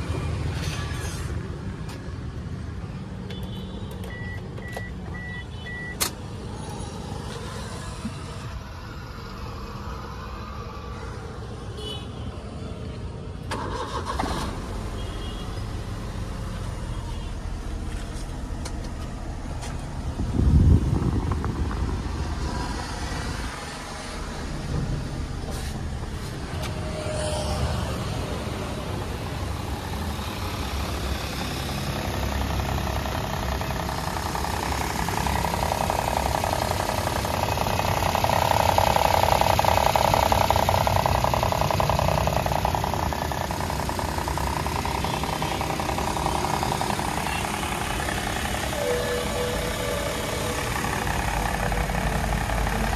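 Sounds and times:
car engine idling: 0:13.4 - 0:52.9.

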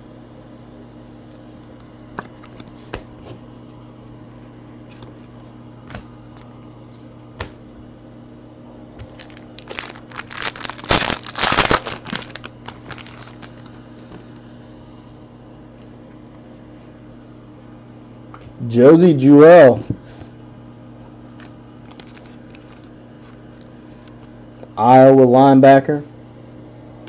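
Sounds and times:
foil wrapper tearing and crinkling: 0:09.0 - 0:13.8, 0:21.4 - 0:23.0.

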